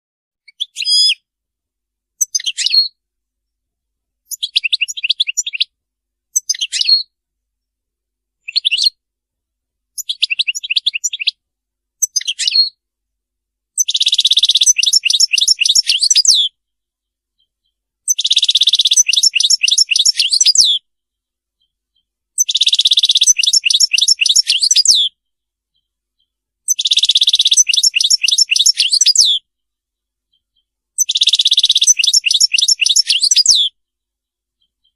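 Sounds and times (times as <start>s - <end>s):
goldfinch twittering song: 2.2s - 3.0s, 4.3s - 5.7s, 6.4s - 7.1s, 8.4s - 8.9s, 10.0s - 11.4s, 12.0s - 12.8s, 13.8s - 16.5s, 17.4s - 34.0s.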